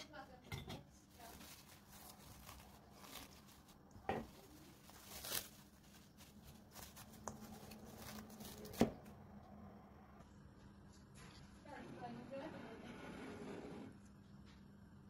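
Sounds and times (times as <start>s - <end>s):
cling film crinkling: 1.0s - 9.2s.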